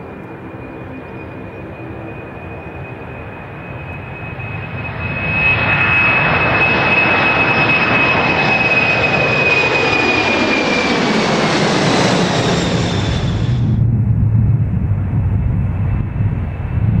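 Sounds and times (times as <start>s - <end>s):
jet engines at takeoff: 0.0s - 17.0s.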